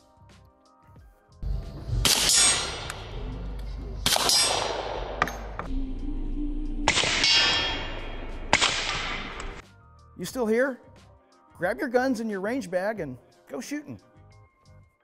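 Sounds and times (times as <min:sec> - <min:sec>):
suppressed pistol shots: 0:04.0 - 0:05.4.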